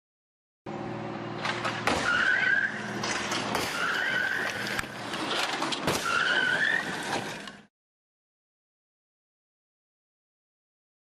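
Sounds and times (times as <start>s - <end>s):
car running: 0.7s - 7.7s
high wavering squeals: 3.7s - 4.9s.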